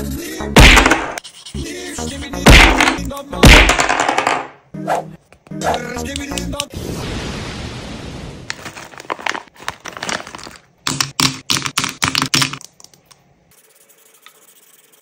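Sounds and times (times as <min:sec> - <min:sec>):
plastic bag crinkling: 0:08.5 - 0:10.7.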